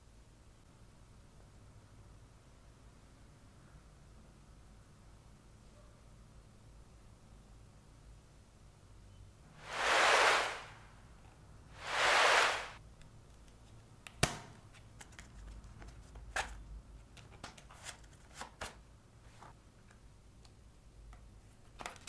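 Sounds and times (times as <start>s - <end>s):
loud rushing hisses: 9.6s - 10.9s, 11.8s - 12.8s.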